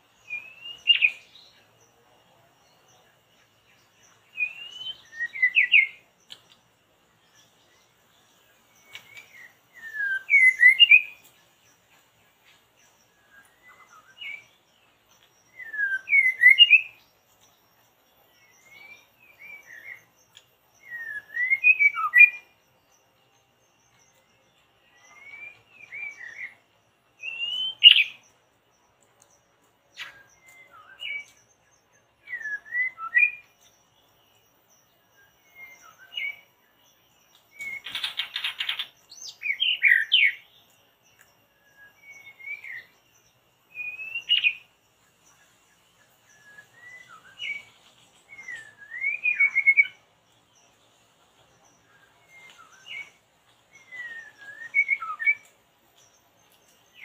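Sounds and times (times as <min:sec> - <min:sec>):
songbird whistled phrases: 0:00.2 - 0:01.5, 0:04.3 - 0:06.0, 0:08.8 - 0:11.2, 0:13.2 - 0:14.6, 0:15.5 - 0:17.1, 0:18.4 - 0:20.1, 0:20.8 - 0:22.6, 0:24.9 - 0:26.6, 0:27.2 - 0:28.2, 0:30.0 - 0:31.4, 0:32.2 - 0:33.6, 0:35.1 - 0:36.5, 0:37.5 - 0:40.5, 0:41.6 - 0:43.0, 0:43.7 - 0:44.7, 0:46.3 - 0:47.7, 0:48.3 - 0:50.0, 0:51.8 - 0:55.5.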